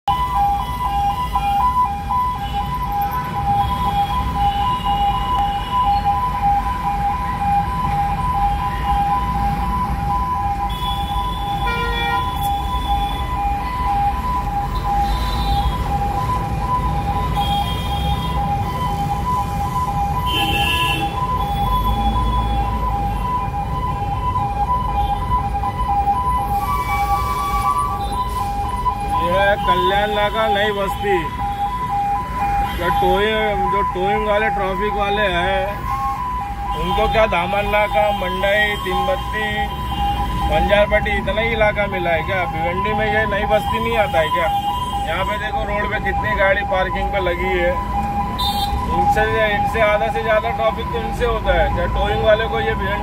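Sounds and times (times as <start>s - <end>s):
two-tone electronic siren: 0.0s - 53.0s
traffic horns: 10.6s - 13.5s, 14.6s - 16.0s, 17.1s - 19.2s, 20.0s - 22.9s, 26.4s - 33.6s, 36.6s - 40.8s, 43.2s - 45.6s, 48.1s - 49.1s.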